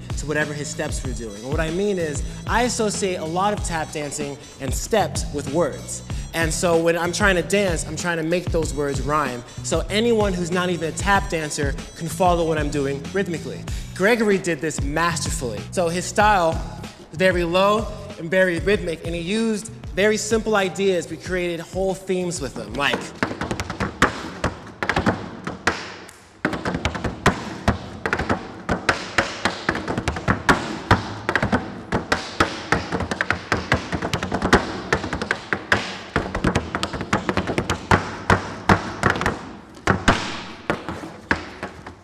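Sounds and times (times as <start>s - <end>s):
tap shoes on wooden board: 22.6s - 42.0s.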